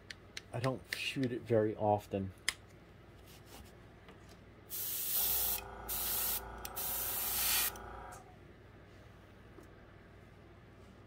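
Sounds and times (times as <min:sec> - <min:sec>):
airbrush hissing: 0:04.7 - 0:08.2
steady hum: 0:05.0 - 0:08.5.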